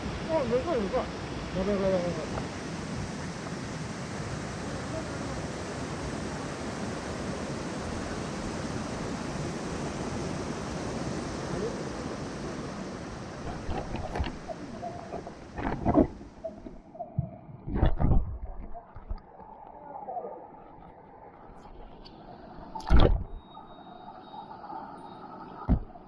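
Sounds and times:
stream water rushing: 0.0 - 17.1.

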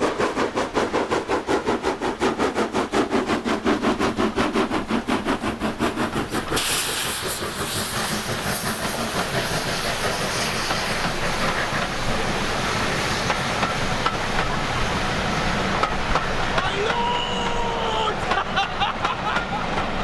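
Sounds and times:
train wheels rumbling and clicking: 0.0 - 20.0
steady hiss: 6.4 - 16.4.

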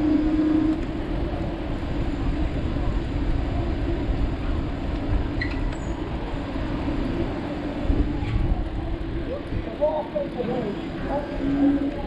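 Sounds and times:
wind buffeting microphone: 0.0 - 10.2
rumbling street traffic: 0.0 - 12.0.

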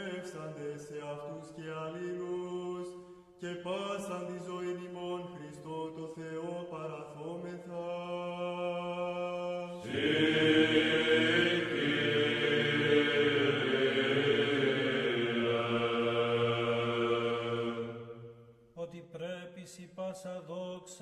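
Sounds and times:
congregation chanting: 6.8 - 18.6.

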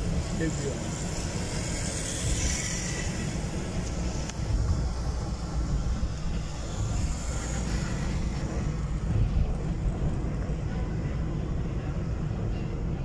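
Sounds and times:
coach bus engine rumble: 0.0 - 13.0
road noise: 0.0 - 13.0.

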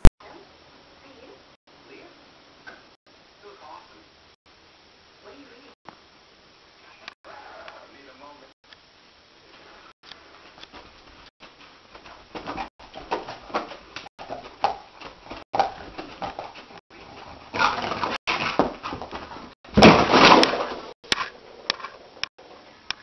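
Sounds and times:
dog scrambling and running: 10.7 - 20.9.

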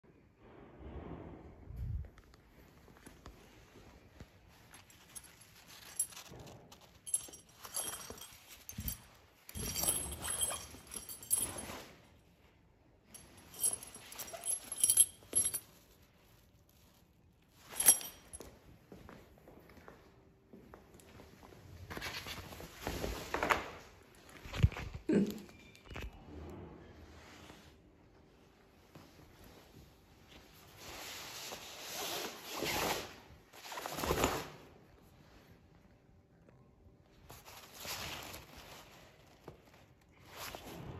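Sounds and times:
fabric bag rustling: 1.8 - 12.5, 13.1 - 18.5, 37.3 - 40.9
metal zipper pulls clinking: 4.6 - 12.2, 13.1 - 16.0, 17.6 - 18.5.

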